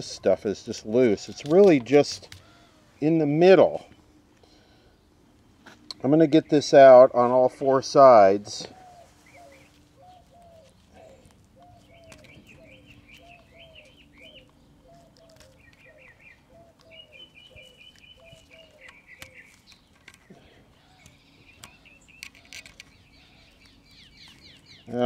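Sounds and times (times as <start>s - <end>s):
high chirping bird trills: 8.6s - 25.0s
low bird call: 8.6s - 25.0s.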